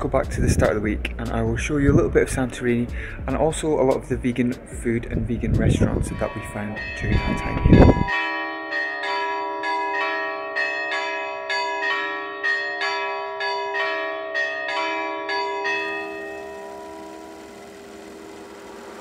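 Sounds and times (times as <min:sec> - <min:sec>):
church bells ringing a peal: 0:06.1 - 0:18.5.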